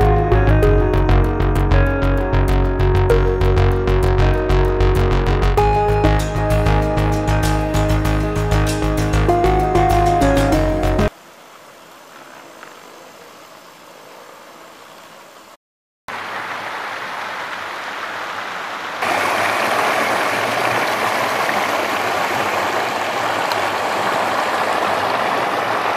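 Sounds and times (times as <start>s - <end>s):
water rushing over rocks: 16.1s - 25.9s.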